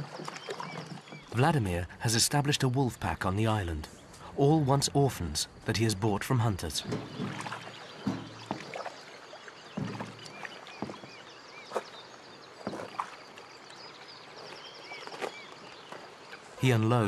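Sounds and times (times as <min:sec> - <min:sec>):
water washing: 0:00.0 - 0:11.9
hollow knocks of boat hull: 0:06.8 - 0:09.0, 0:09.7 - 0:11.8.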